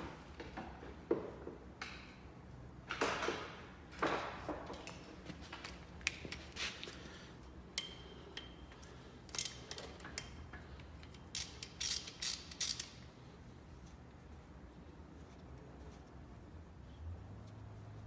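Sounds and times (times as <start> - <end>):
socket ratchet clicking: 9.3 - 10.4, 11.0 - 13.0.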